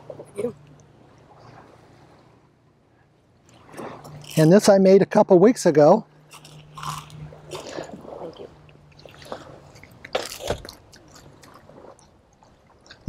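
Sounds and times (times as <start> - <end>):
person chewing crunchy corn: 6.3 - 13.0.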